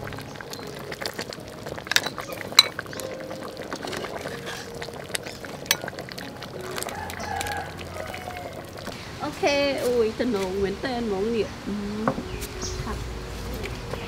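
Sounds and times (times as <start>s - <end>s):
soup bubbling and sloshing: 0.0s - 9.0s
metal ladle clinking: 1.8s - 6.9s.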